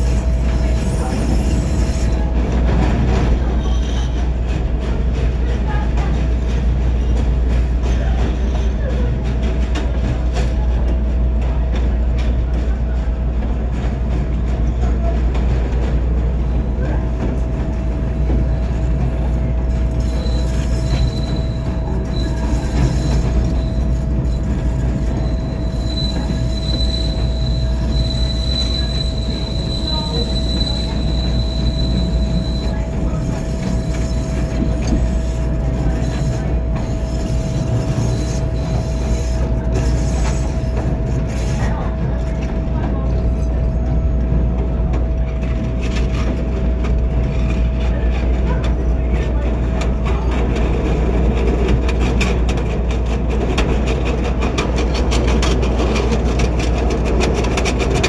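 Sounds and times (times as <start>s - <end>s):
elevated train rumbling: 0.0s - 58.0s
high wheel squeal: 19.9s - 34.5s.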